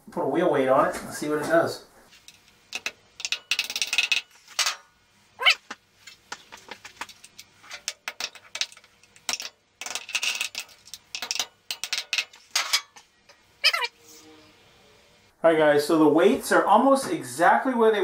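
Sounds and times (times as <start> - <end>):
brief wavering squeaks: 13.6 - 14.4.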